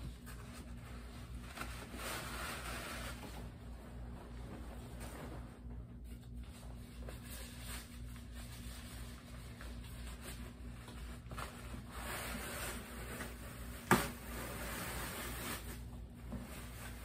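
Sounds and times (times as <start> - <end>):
steady low hum: 0.0 - 17.0
fabric rustling and sliding: 0.3 - 10.5.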